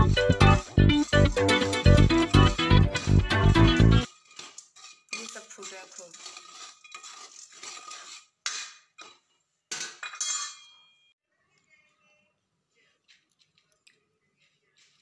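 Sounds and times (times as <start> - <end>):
spatula scraping chickpeas in granules: 0.0 - 8.9.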